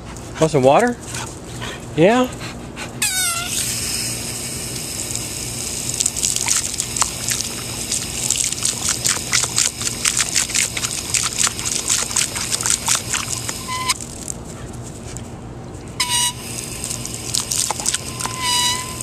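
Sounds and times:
high-pitched squeak: 3.0s - 3.6s, 13.6s - 14.0s, 16.0s - 16.4s, 18.1s - 19.0s
dog lapping at water: 5.9s - 14.0s, 16.6s - 18.7s
hose spray hissing: 16.0s - 19.0s.

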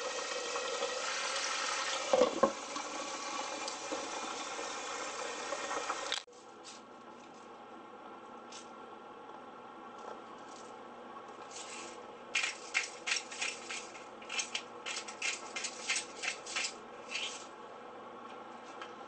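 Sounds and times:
salt grinder grinding: 11.6s - 17.5s.

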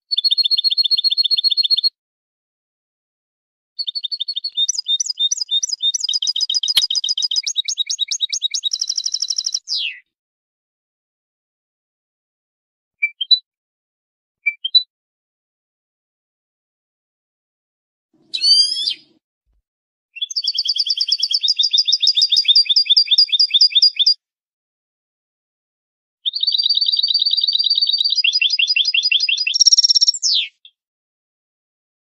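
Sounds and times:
goldfinch song: 3.8s - 10.1s, 18.2s - 19.2s, 20.2s - 24.2s, 26.3s - 30.7s.

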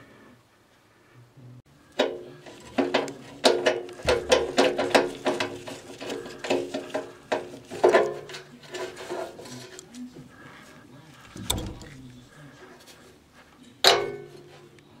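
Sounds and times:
metallic clanks and knocks: 2.0s - 9.8s, 11.3s - 12.2s, 13.8s - 14.5s.

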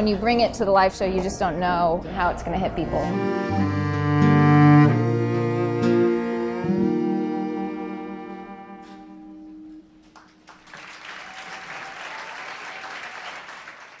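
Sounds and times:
acoustic guitar: 3.1s - 10.2s
audience applauding: 10.0s - 14.0s.

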